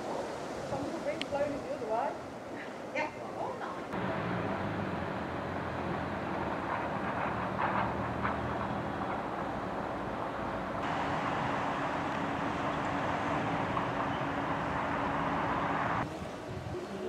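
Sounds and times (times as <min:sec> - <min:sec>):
road traffic noise: 0:00.0 - 0:17.0
low engine hum: 0:04.0 - 0:16.1.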